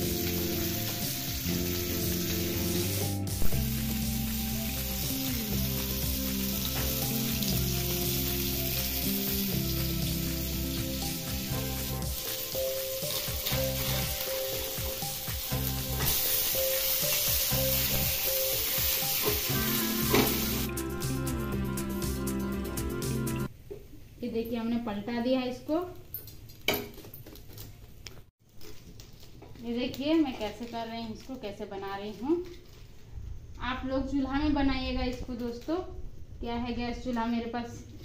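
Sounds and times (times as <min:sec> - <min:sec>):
fish sizzling in pan: 0:00.0 - 0:21.4
background music: 0:00.0 - 0:23.5.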